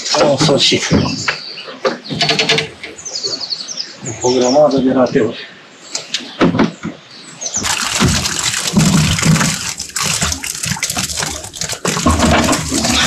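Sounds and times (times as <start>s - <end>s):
water splashing in a bucket: 7.6s - 13.0s.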